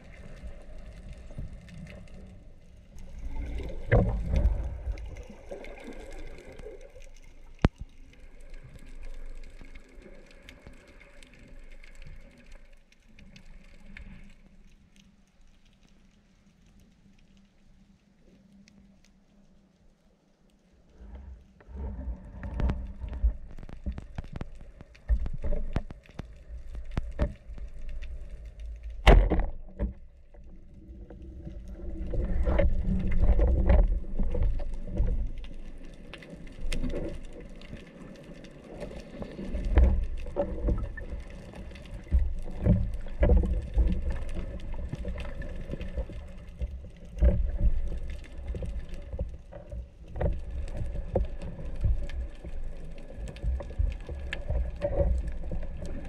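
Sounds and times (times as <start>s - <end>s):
underwater rumble of moving water: 0.0s - 56.0s.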